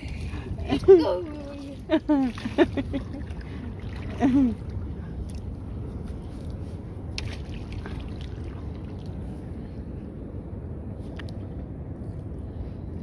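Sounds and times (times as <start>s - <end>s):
water around boat: 0.0s - 13.0s
wind: 0.0s - 13.0s.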